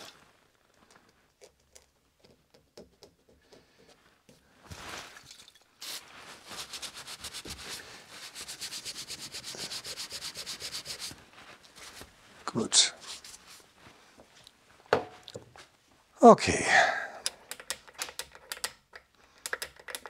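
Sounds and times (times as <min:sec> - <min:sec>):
paper towel rubbing metal: 0:06.3 - 0:12.1.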